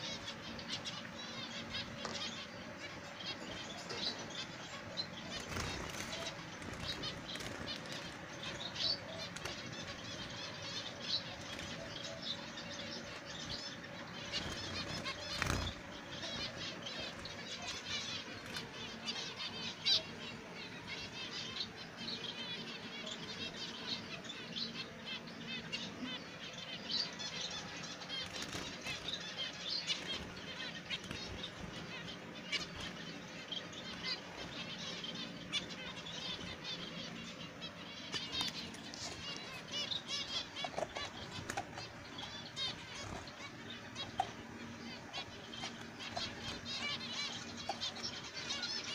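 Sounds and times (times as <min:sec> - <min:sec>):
finches chirping: 0:00.0 - 0:48.9
wing flutters: 0:05.3 - 0:10.2, 0:14.2 - 0:19.1.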